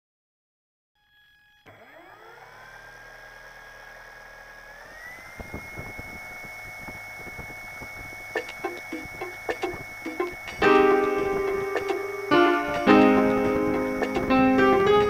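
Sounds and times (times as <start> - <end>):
electric motor and propeller whine: 1.0 - 15.0
plucked guitar music: 9.6 - 15.0.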